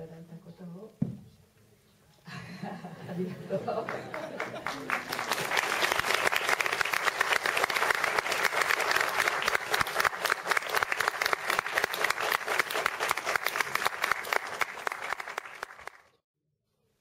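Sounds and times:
audience applauding: 0:03.8 - 0:16.2.

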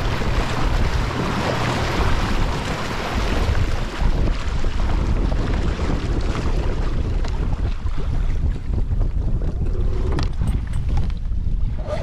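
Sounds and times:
outboard motor running: 0:00.0 - 0:12.0
water splashing: 0:00.0 - 0:12.0
wind buffeting microphone: 0:00.0 - 0:12.0.

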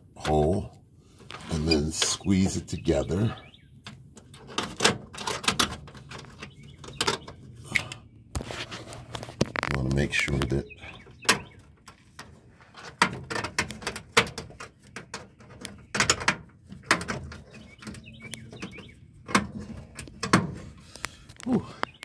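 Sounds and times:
metallic clicks and knocks: 0:03.8 - 0:07.4, 0:09.2 - 0:20.6.

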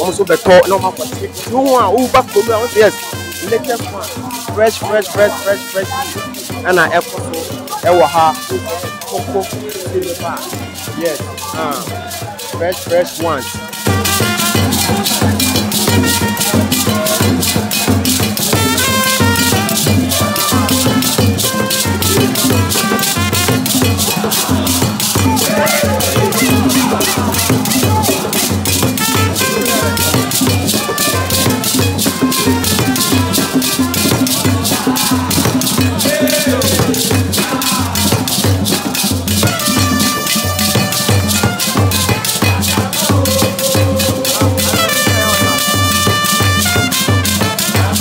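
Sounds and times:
music with steady beat: 0:00.0 - 0:48.0
shaker: 0:00.0 - 0:48.0
bass drum: 0:10.0 - 0:48.0.

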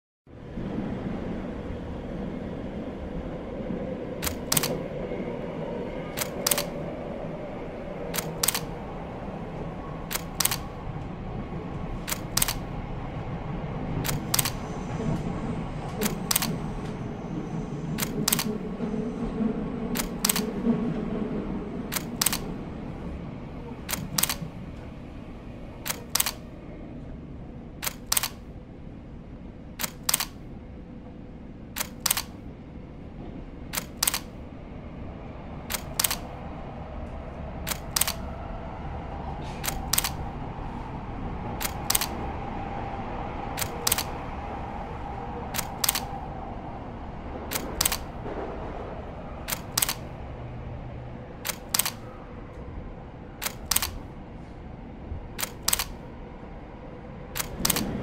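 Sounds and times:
subway station rumble: 0:00.2 - 0:58.0
sharp double click: 0:04.2 - 0:04.8, 0:08.2 - 0:08.7, 0:10.1 - 0:10.7, 0:12.1 - 0:12.6, 0:22.0 - 0:22.4, 0:23.9 - 0:24.4, 0:25.9 - 0:26.4, 0:27.8 - 0:28.4, 0:29.8 - 0:30.4, 0:31.8 - 0:32.4, 0:33.8 - 0:34.3, 0:35.7 - 0:36.2, 0:39.6 - 0:40.2, 0:45.6 - 0:46.1, 0:47.5 - 0:48.1, 0:49.5 - 0:50.1, 0:51.5 - 0:52.0, 0:53.4 - 0:54.0, 0:55.4 - 0:56.0, 0:57.4 - 0:58.0.

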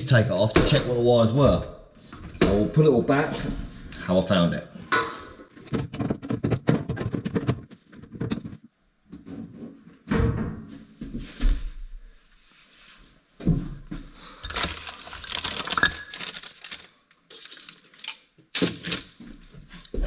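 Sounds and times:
boiler casing clicks and scraping: 0:14.5 - 0:19.0.

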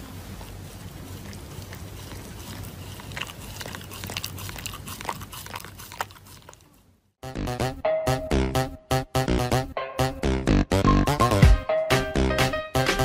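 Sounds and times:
dog chewing paper tissue: 0:00.0 - 0:06.8.

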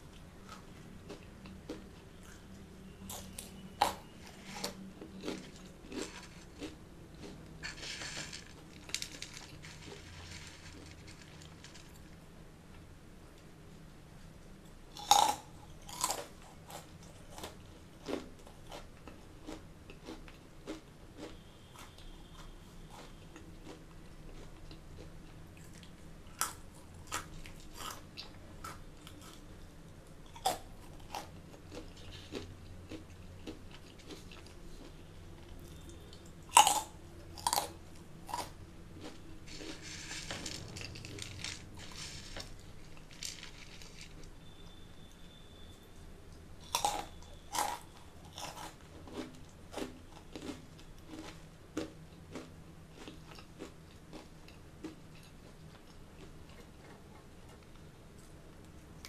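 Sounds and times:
crunching and chewing snack: 0:00.0 - 0:12.2, 0:14.9 - 0:29.6, 0:30.2 - 0:45.4, 0:46.6 - 0:59.0
fingers rustling snack on plate: 0:03.1 - 0:12.2, 0:35.6 - 0:44.4.

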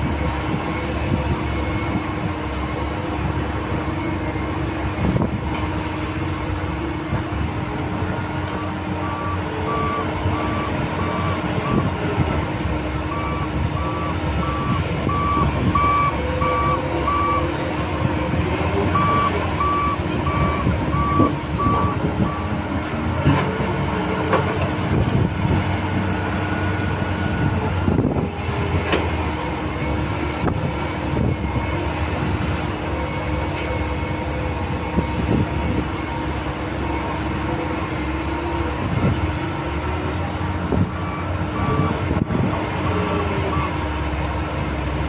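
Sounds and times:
heavy diesel engines running: 0:00.0 - 0:45.0
reversing alarm beeping: 0:00.2 - 0:05.0, 0:08.4 - 0:12.2, 0:12.8 - 0:17.6, 0:18.9 - 0:22.6, 0:32.8 - 0:38.4, 0:40.8 - 0:42.2, 0:42.8 - 0:43.9.

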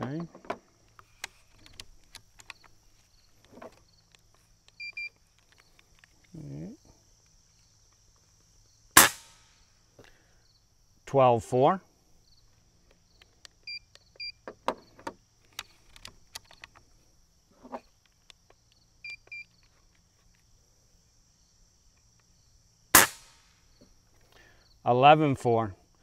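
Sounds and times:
handling clicks and knocks: 0:00.0 - 0:02.8
digital gauge beeping: 0:04.8 - 0:05.2.

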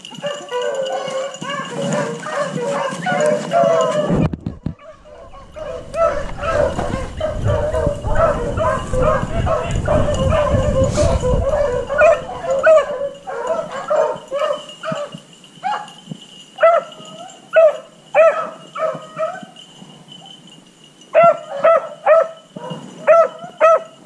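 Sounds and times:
beagles baying: 0:00.0 - 0:16.0.

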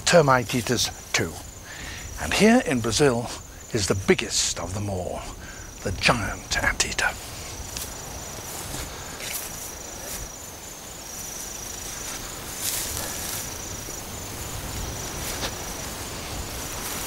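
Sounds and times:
insects trilling: 0:00.0 - 0:17.0
footsteps through grass and brush: 0:07.1 - 0:17.0.

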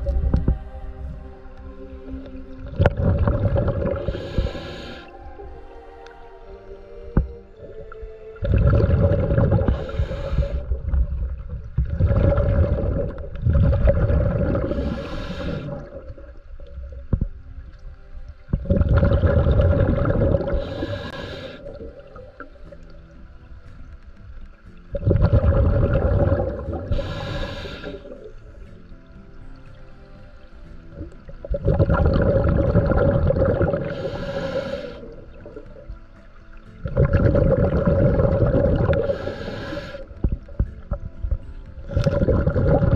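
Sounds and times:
diver exhaling bubbles: 0:02.7 - 0:05.1, 0:08.4 - 0:16.4, 0:18.6 - 0:22.5, 0:24.9 - 0:28.3, 0:31.0 - 0:35.7, 0:36.8 - 0:41.0, 0:41.9 - 0:42.9.

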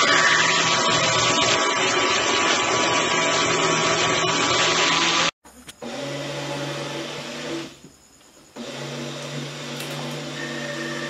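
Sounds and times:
electric spice grinder grinding: 0:00.0 - 0:05.3.

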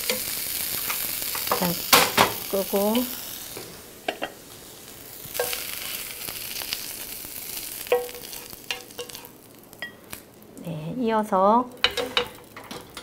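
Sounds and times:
food sizzling in a frying pan: 0:00.0 - 0:13.0
chopsticks scraping a pan: 0:05.3 - 0:06.3, 0:07.8 - 0:09.4
chopsticks clinking on a pan: 0:07.9 - 0:10.0, 0:11.7 - 0:13.0.

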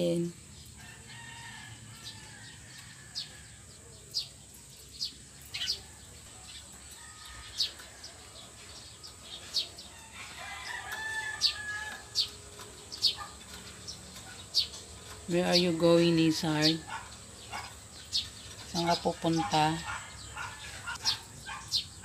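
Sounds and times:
rooster crowing: 0:00.8 - 0:03.9, 0:06.8 - 0:09.0, 0:09.6 - 0:12.5, 0:19.0 - 0:21.2
small bird chirping: 0:02.0 - 0:22.0.

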